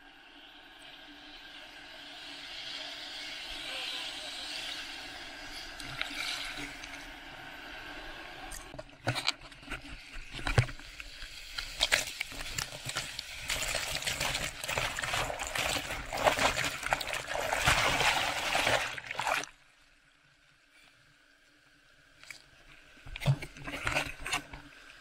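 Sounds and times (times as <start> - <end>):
water knocks and splats on camera: 11.7 - 19.5.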